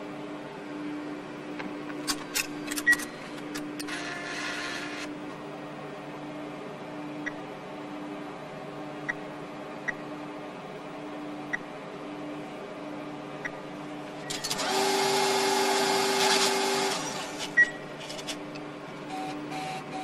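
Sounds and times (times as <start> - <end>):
cash dispenser whirring: 2.0 - 5.2, 14.2 - 20.0.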